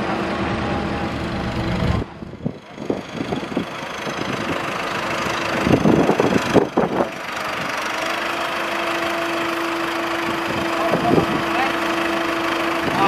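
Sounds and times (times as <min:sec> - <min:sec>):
steady higher drone: 0:00.0 - 0:02.8
tractor diesel engine running: 0:00.0 - 0:13.0.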